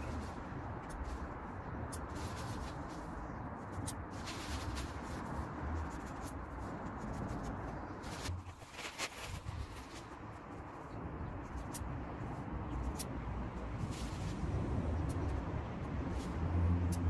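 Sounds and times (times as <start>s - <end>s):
plastic bag rustling: 4.1s - 6.3s, 8.0s - 10.4s.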